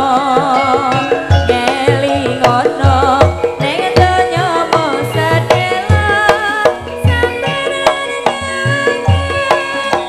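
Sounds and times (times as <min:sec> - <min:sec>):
steady pitched accompaniment: 0:00.0 - 0:10.0
wavering melody with vibrato: 0:00.0 - 0:10.0.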